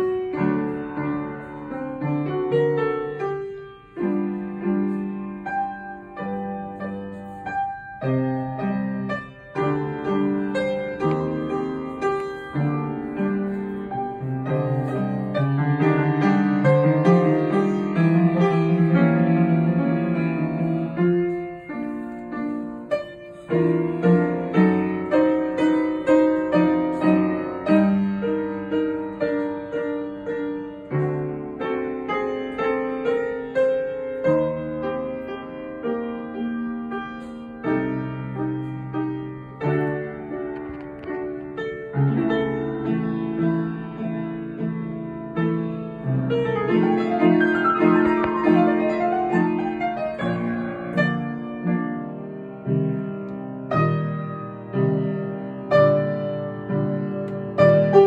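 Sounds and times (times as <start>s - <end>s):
slow piano piece: 0.0s - 58.0s.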